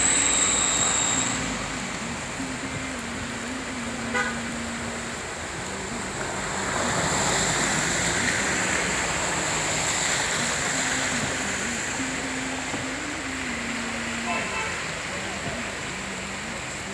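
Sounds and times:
tyres splashing through water: 0:00.0 - 0:16.9
car horn toot: 0:04.1 - 0:04.6, 0:14.2 - 0:14.8.

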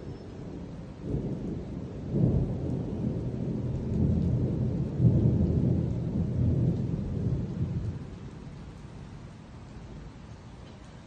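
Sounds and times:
thunder rumbling: 0:00.0 - 0:09.4.

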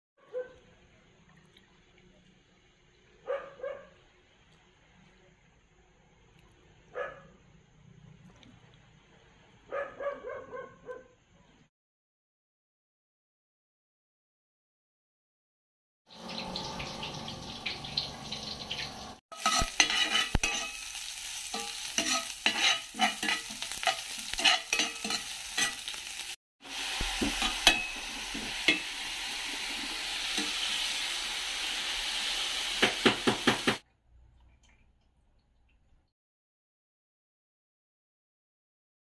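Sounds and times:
food sizzling in a frying pan: 0:16.1 - 0:33.8
meat frying: 0:16.1 - 0:33.8
spatula scraping and clicking on pan: 0:19.4 - 0:26.2, 0:27.0 - 0:29.0, 0:30.3 - 0:30.7.

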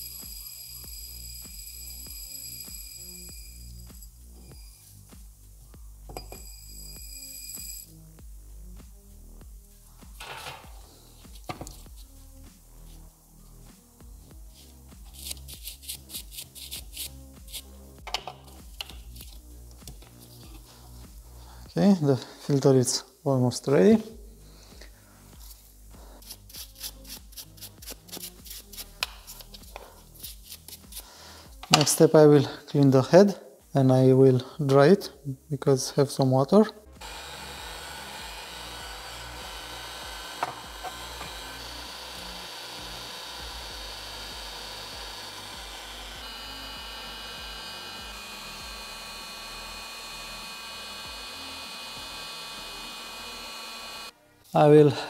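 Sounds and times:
gloved hands tapping and scraping metal: 0:27.6 - 0:31.0
heat gun blowing air: 0:37.0 - 0:54.1.

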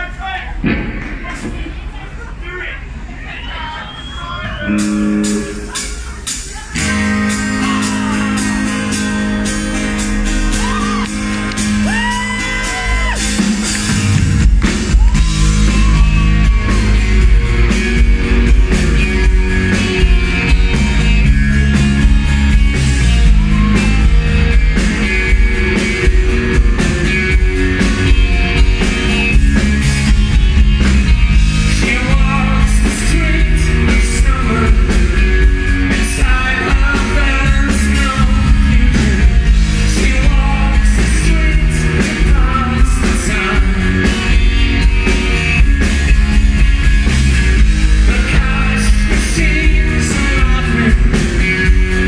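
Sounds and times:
drums and bass: 0:00.0 - 0:03.1, 0:04.4 - 0:52.0
sustained guitar chords: 0:04.7 - 0:05.8, 0:06.8 - 0:52.0
man singing: 0:31.6 - 0:44.4, 0:47.9 - 0:52.0.

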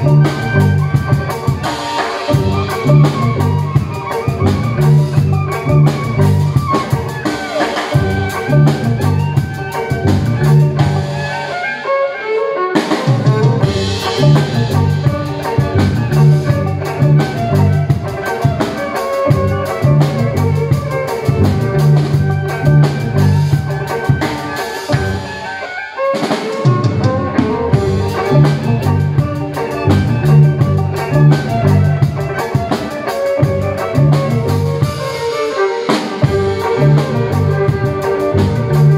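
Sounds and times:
amplified violin: 0:00.0 - 0:38.9
drum kit playing: 0:00.0 - 0:38.9.

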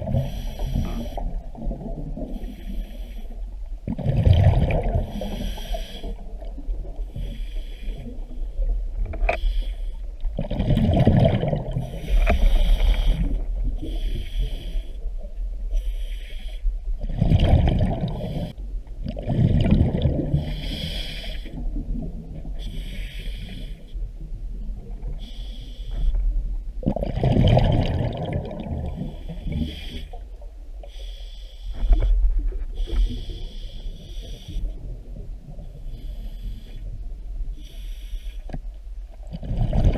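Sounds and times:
underwater bubbles rumbling: 0:00.0 - 0:02.8, 0:03.4 - 0:09.4, 0:10.1 - 0:15.8, 0:16.9 - 0:20.7, 0:21.5 - 0:22.9, 0:24.0 - 0:25.4, 0:26.0 - 0:30.8, 0:38.6 - 0:39.9.

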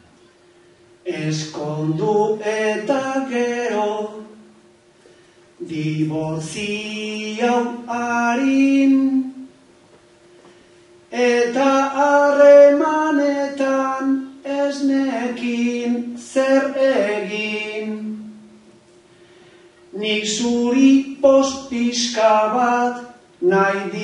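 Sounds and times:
man singing unaccompanied: 0:01.0 - 0:04.6, 0:05.6 - 0:09.5, 0:11.1 - 0:18.4, 0:19.9 - 0:24.0.

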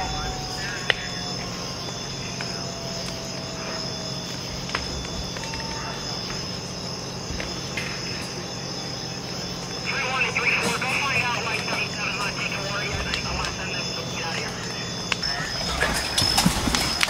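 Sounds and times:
crickets chirring: 0:00.0 - 0:17.0
steady low hum: 0:00.0 - 0:17.0.

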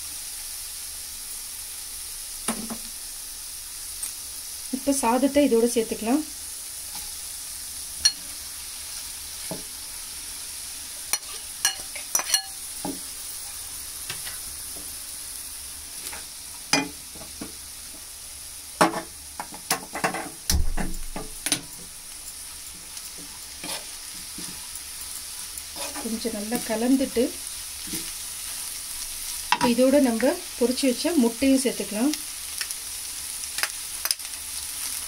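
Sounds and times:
frying sizzle: 0:00.0 - 0:35.0
ladle scraping and clinking on pan: 0:11.1 - 0:12.6.

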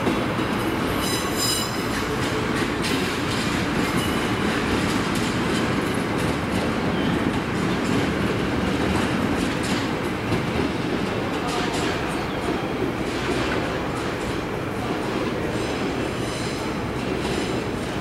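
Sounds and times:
wheels clicking over rail joints: 0:00.0 - 0:18.0.

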